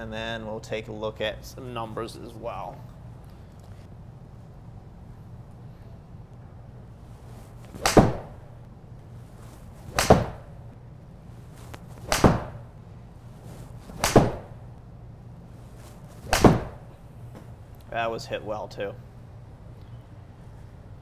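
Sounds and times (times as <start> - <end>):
golf club striking ball: 7.8 - 8.4, 9.9 - 10.6, 12.0 - 12.8, 13.9 - 14.6, 16.2 - 16.9.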